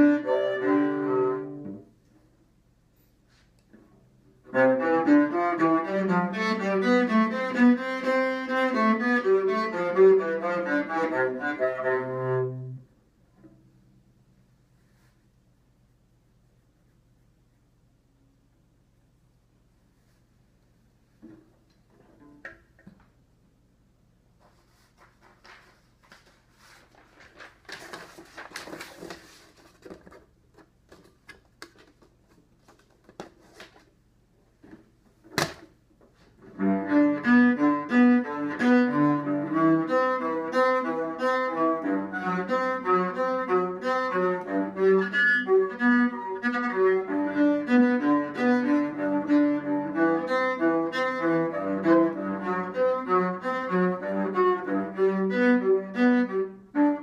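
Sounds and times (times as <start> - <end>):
cello bowed: 0.0 - 1.9, 4.5 - 12.9, 36.5 - 57.0
faint rustling: 24.3 - 35.0.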